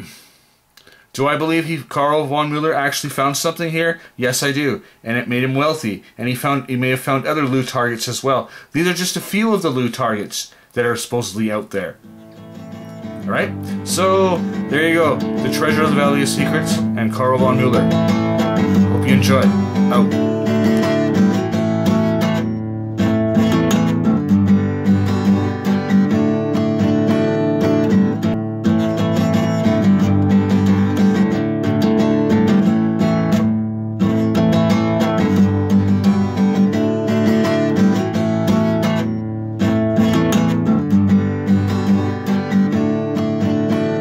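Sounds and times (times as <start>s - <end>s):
strummed acoustic guitar music: 12.0s - 44.0s.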